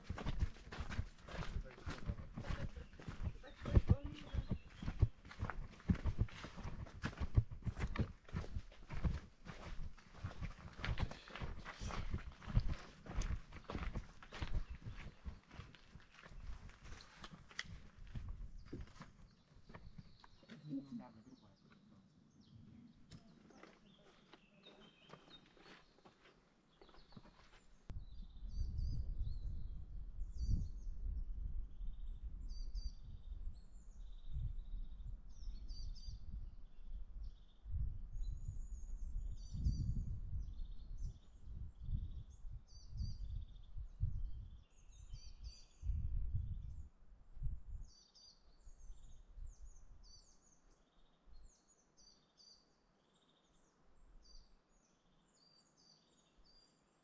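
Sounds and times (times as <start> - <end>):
small birds singing: 0.0 - 57.0
low rumble on microphone: 27.9 - 48.0.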